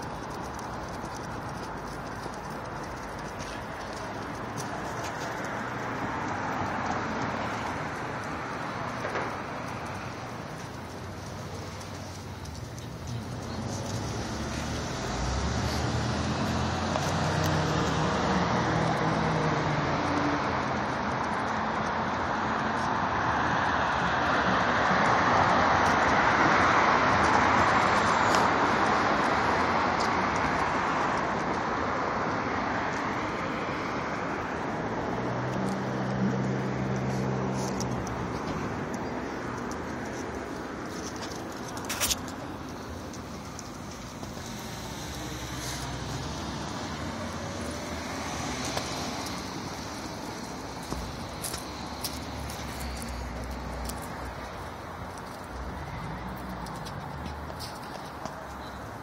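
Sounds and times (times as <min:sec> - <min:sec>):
street traffic noise: 0:00.0 - 0:59.0
tyre and road noise: 0:00.0 - 0:59.0
car driving past: 0:13.4 - 0:20.6.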